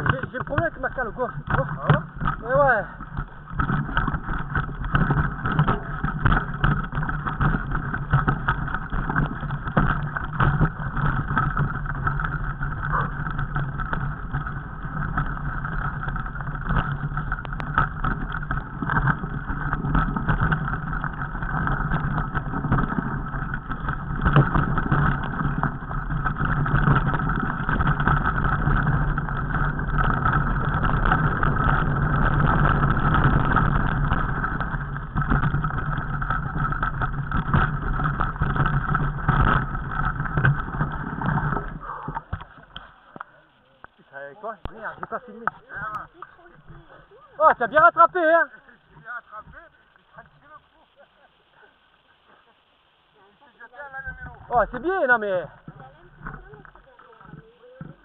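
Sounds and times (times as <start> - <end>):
small knocks and rattles: 0.0 - 44.0, 54.0 - 58.0
bike rolling over rocky trail: 0.0 - 52.5, 53.2 - 58.0.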